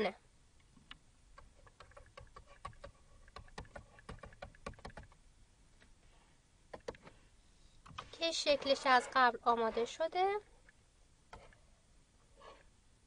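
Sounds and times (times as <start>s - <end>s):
stylus tapping on tablet: 1.4s - 5.2s.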